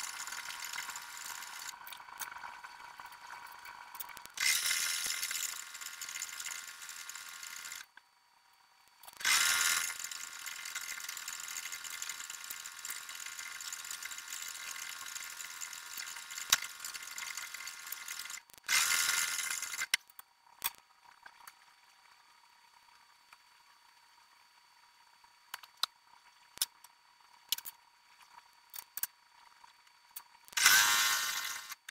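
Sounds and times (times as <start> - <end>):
sewing machine stitching: 0.0 - 1.7, 4.3 - 7.9, 9.2 - 19.9, 30.6 - 31.9.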